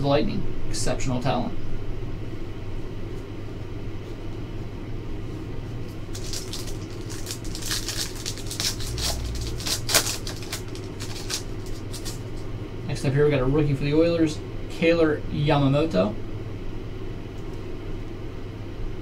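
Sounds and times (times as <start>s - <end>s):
steady low hum: 0.0s - 19.0s
foil wrapper crinkling: 5.8s - 12.4s.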